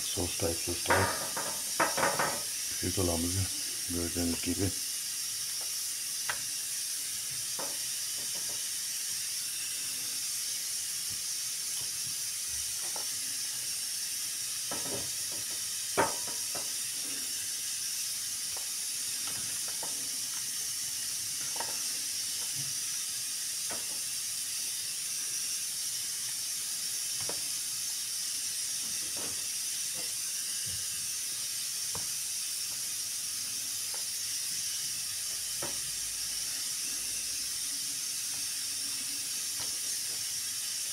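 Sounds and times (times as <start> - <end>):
steady high hiss: 0.0 - 40.9
knocks on metal baking tray: 0.9 - 2.4, 16.0 - 16.4.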